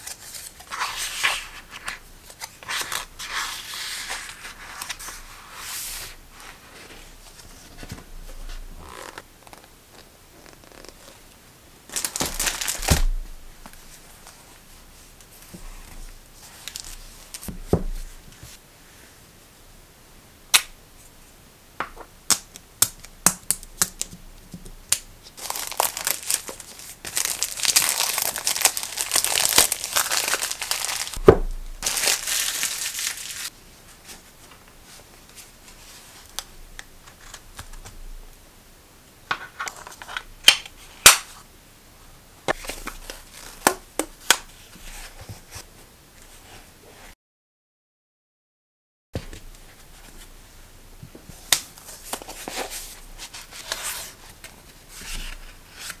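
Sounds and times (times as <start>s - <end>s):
plastic wrapper crinkling: 11.9s - 13.0s, 24.9s - 31.2s, 31.8s - 33.5s.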